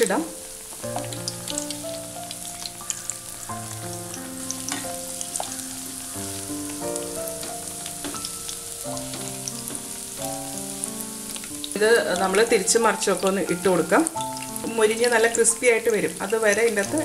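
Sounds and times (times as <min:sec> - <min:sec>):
bread sizzling in hot oil: 0:00.0 - 0:17.0
gentle melodic background music: 0:00.0 - 0:17.0
spatula crackles and clicks: 0:03.8 - 0:06.0.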